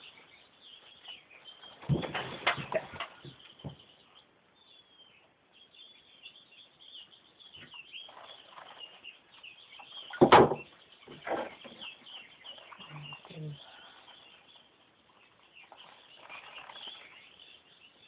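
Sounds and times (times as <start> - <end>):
bird chirps and calls: 0.0 - 18.0
loud knock: 10.2 - 10.7.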